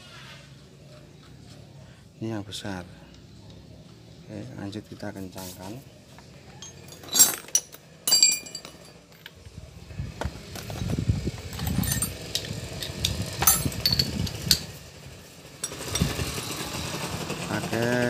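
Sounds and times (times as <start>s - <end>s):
metal hand tools clinking: 6.6s - 9.4s, 11.6s - 14.7s, 15.6s - 16.2s.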